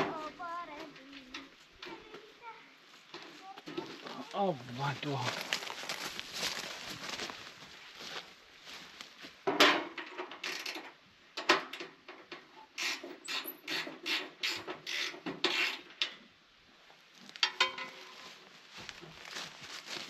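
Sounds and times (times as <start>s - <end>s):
metal clanks: 17.4s - 18.2s.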